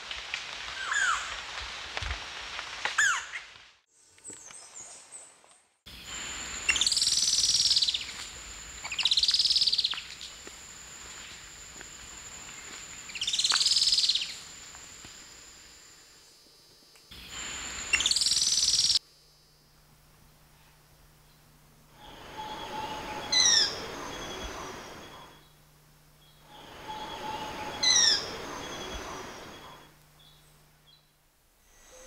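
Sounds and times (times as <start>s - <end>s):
steady high whine: 5.9s - 32.0s
bird singing trills: 22.0s - 25.6s, 26.2s - 31.1s.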